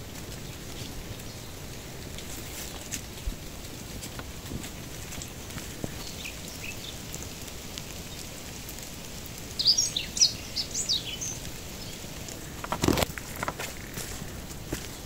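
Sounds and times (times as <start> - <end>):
light rain on foliage: 0.0 - 15.0
small bird chirping: 5.9 - 7.2, 9.6 - 12.1.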